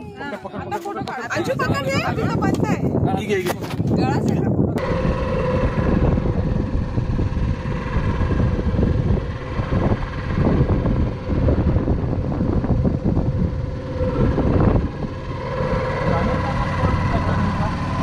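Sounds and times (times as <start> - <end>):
wind rumbling on microphone: 0.0 - 18.0
boat motor droning: 4.7 - 18.0.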